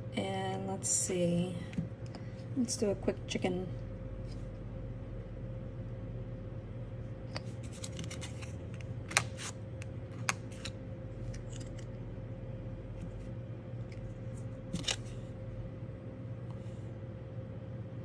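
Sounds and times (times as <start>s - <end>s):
steady low hum: 0.0s - 18.0s
plastic scraper clicks and scrapes: 7.6s - 8.5s, 10.2s - 11.9s, 14.7s - 15.1s.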